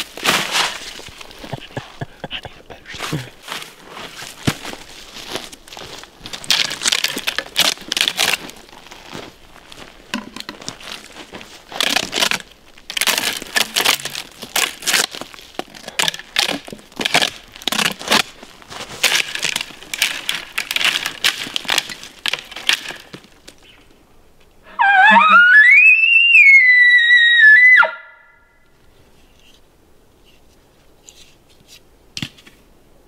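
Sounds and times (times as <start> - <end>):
dry crunching and rustling: 0.0 - 24.0.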